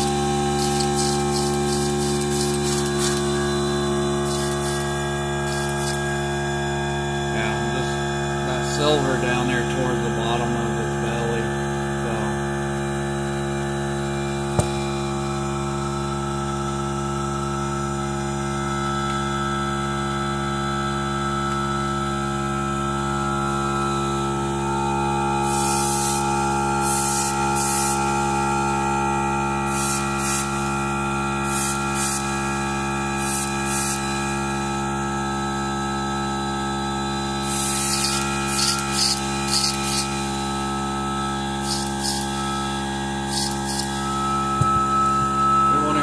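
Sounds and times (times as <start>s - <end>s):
airbrush compressor humming: 0.0s - 46.0s
airbrush spray hiss: 0.5s - 3.3s, 4.2s - 6.0s, 25.4s - 26.2s, 26.8s - 28.0s, 29.7s - 30.6s, 31.5s - 32.3s, 33.2s - 34.1s, 37.4s - 40.2s, 41.6s - 42.4s, 43.3s - 44.0s.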